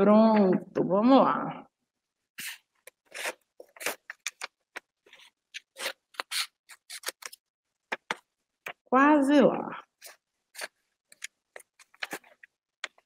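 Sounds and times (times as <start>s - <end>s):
paper rustling: 3.1s - 8.2s.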